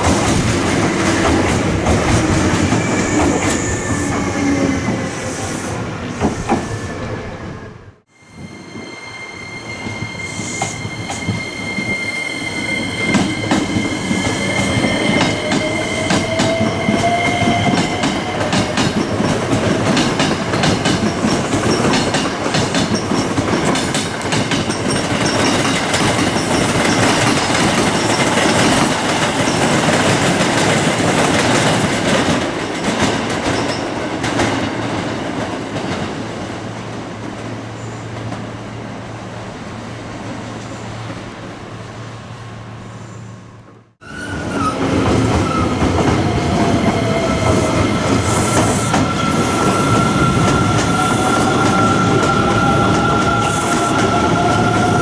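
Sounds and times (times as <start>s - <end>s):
high steady squeal: 8.1s - 17.4s.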